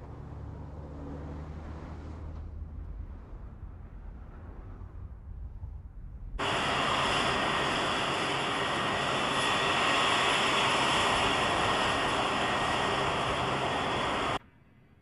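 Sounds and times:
jet engines roaring with whine: 6.4 - 14.4.

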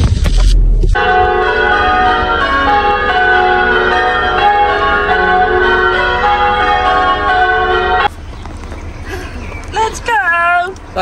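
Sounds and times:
church bells ringing: 1.0 - 8.2.

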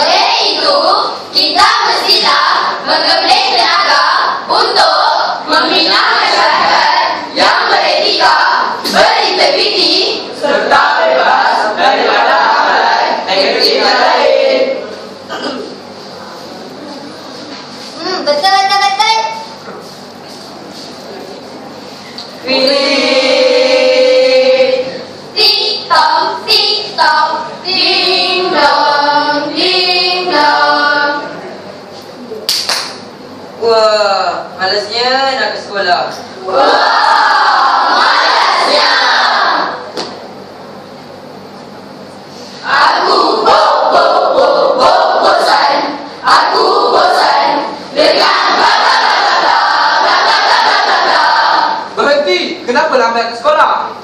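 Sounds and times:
children singing in unison: 0.0 - 14.8, 22.5 - 31.4, 36.5 - 39.7, 42.6 - 51.9.

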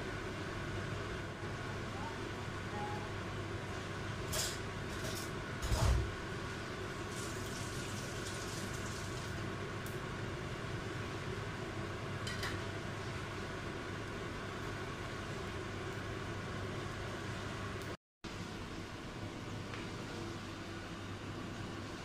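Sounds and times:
stovetop hiss and hum: 0.0 - 22.0.

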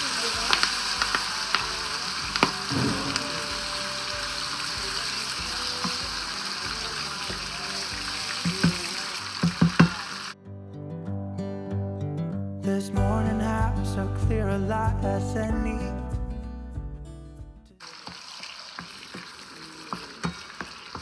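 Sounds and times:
chicken sizzling in hot oil: 0.0 - 10.4, 17.8 - 21.0.

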